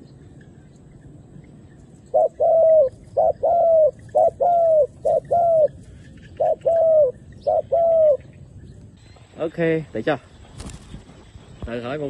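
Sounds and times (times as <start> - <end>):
dove cooing: 2.0 - 8.4.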